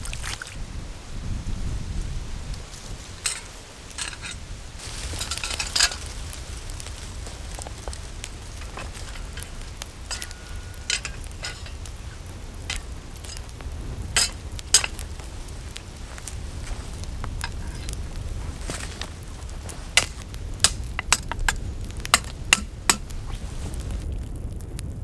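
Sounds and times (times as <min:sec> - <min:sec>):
wood fire crackling: 0:00.0 - 0:25.0
metal grate clinking: 0:03.2 - 0:06.1, 0:08.6 - 0:15.2.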